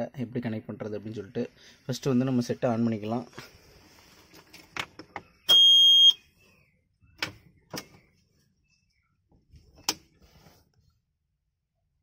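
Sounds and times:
high electronic beep: 5.4 - 6.2.

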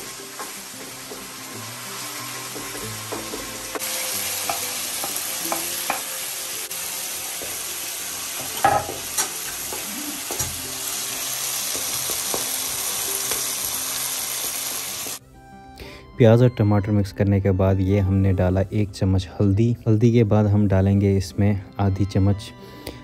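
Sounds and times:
onions and tomatoes sizzling in oil: 0.0 - 15.2.

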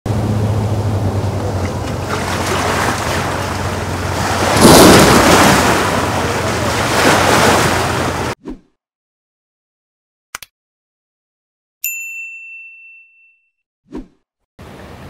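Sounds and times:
outboard motor hum: 0.1 - 8.4
water slapping at dock: 0.6 - 8.4.

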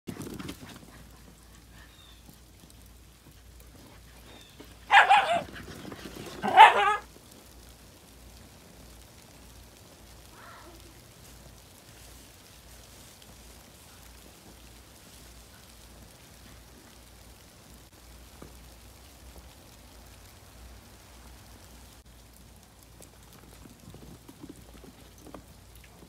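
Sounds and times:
dog barking: 4.9 - 5.5, 6.4 - 7.1.

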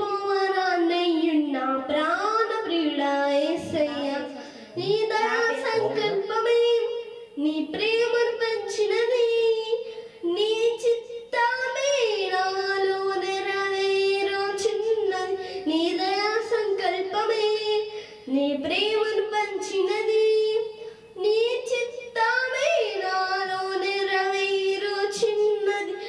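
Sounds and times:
girl singing unaccompanied: 0.0 - 26.0.

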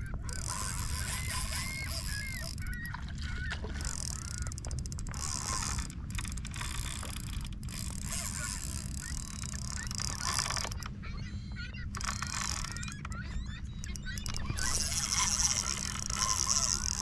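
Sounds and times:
fishing reel drag buzzing: 0.3 - 10.9, 11.8 - 17.0.

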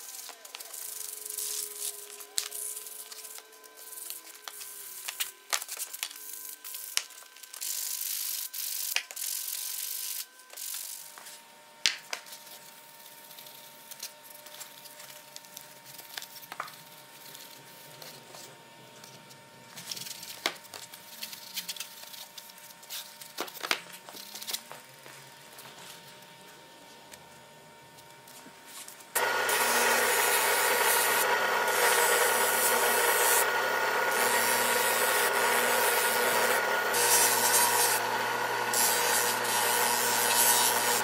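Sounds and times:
sandpaper scraping metal blade: 29.2 - 41.0.

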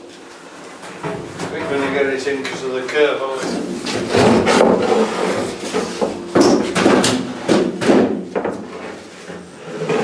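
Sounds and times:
wooden boards knocking and bumping: 3.5 - 10.0.

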